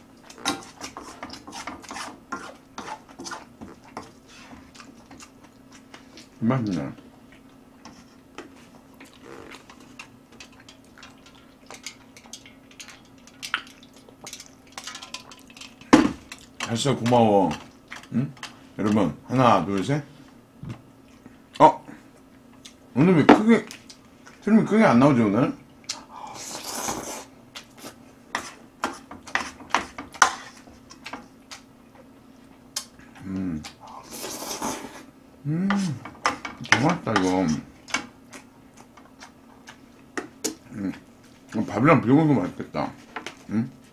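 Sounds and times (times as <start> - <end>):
faint steady hum: 0.0 - 43.9
utensil scraping metal bowl: 0.4 - 4.5.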